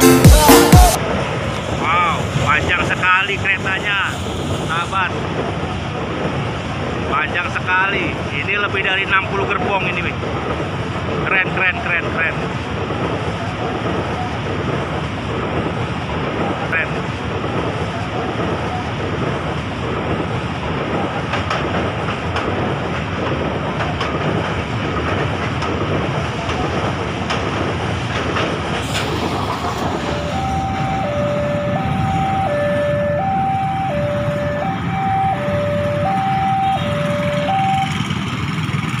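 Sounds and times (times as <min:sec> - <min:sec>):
street traffic: 0:00.0 - 0:39.0
train wheels rumbling on rail: 0:01.0 - 0:39.0
train wagons clanking: 0:08.6 - 0:39.0
level-crossing warning alarm: 0:28.9 - 0:38.5
motorcycle engines: 0:30.1 - 0:39.0.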